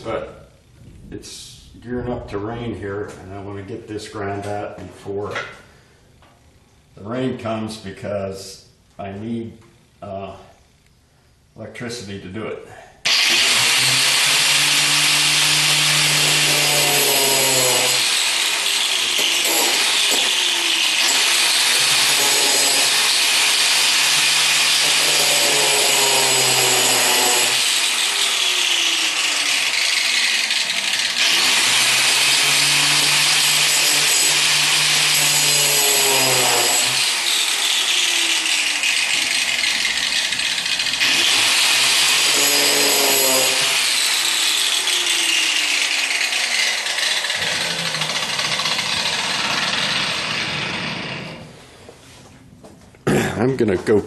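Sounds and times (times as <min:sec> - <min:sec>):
electric grinder cutting steel: 0:13.1 - 0:51.5.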